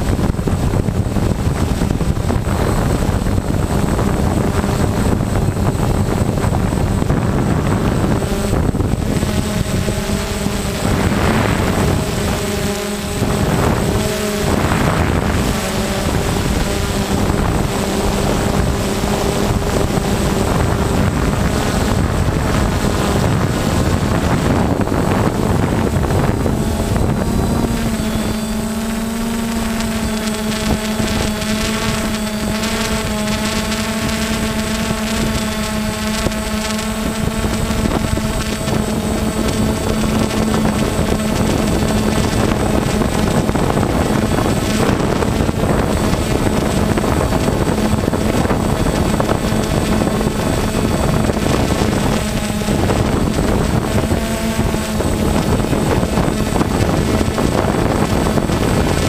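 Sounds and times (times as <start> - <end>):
rushing noise: 0.0 - 33.7
drone propeller hum: 0.0 - 59.0.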